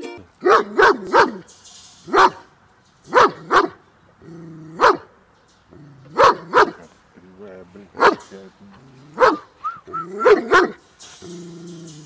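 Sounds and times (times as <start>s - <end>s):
dog barking angrily: 0.4s - 1.4s, 2.1s - 2.5s, 3.1s - 3.8s, 4.7s - 5.1s, 6.1s - 6.9s, 8.0s - 8.2s, 9.1s - 9.5s, 10.2s - 10.8s.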